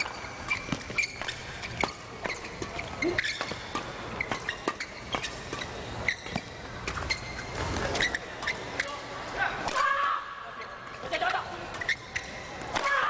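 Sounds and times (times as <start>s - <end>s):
racket hitting shuttlecock: 0.0s - 8.6s, 12.2s - 13.0s
shoes squeaking on court: 0.0s - 9.4s, 10.6s - 12.8s.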